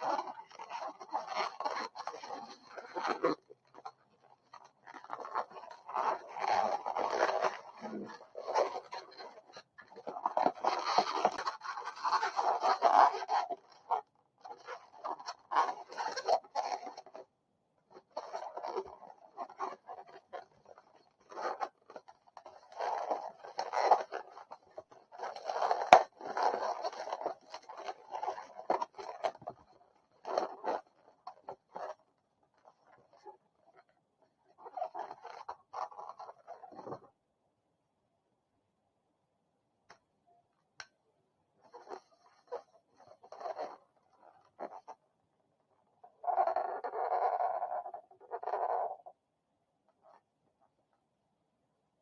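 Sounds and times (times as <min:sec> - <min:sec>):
balloons rubbing together: 0:00.0 - 0:14.0.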